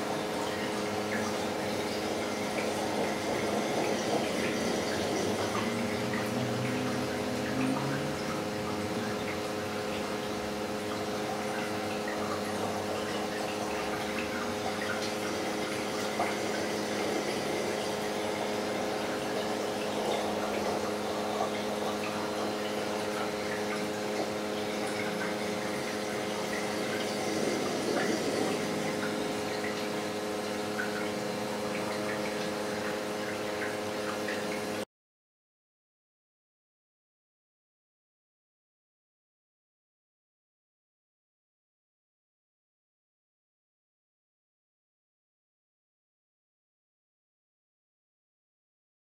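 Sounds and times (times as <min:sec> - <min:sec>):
water rushing and trickling: 0:00.0 - 0:34.8
pump electrical hum: 0:00.0 - 0:34.9.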